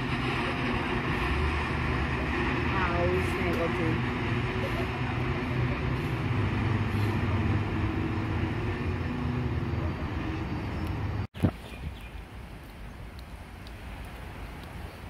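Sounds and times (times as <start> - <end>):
train wheels rumbling on track: 0.0 - 11.3.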